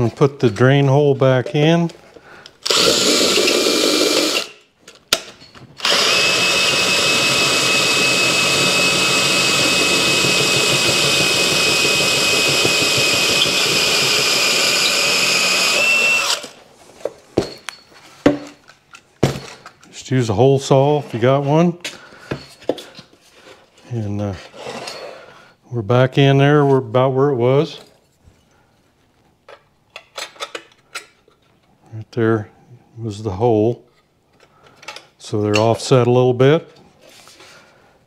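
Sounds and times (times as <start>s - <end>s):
drill with hole saw cutting steel: 2.6s - 4.6s, 5.8s - 16.6s.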